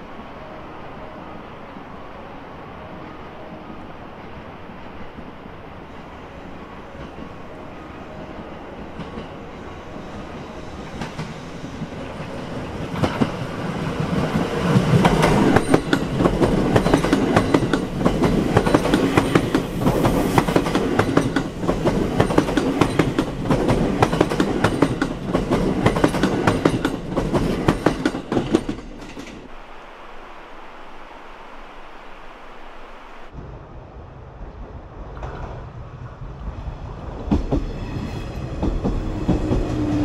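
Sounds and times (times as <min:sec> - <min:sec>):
train wheels clattering over rail joints: 0:10.2 - 0:29.5, 0:37.2 - 0:40.0.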